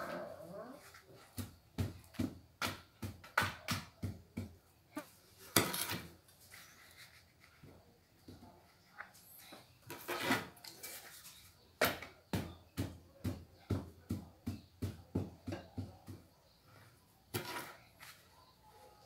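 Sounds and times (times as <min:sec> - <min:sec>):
scraping rustle: 0:05.0 - 0:07.8, 0:09.0 - 0:11.6.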